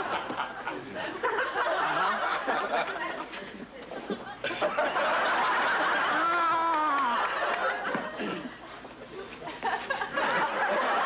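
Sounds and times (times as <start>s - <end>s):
studio audience laughing: 0.0s - 3.3s, 3.9s - 11.0s
voice rising above crowd: 6.1s - 7.3s.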